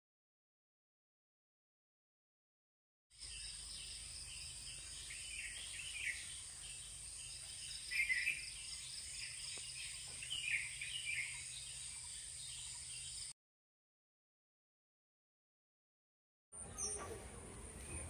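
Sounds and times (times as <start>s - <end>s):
bird calls: 3.2s - 13.3s, 16.6s - 18.0s
insects droning: 3.2s - 13.3s.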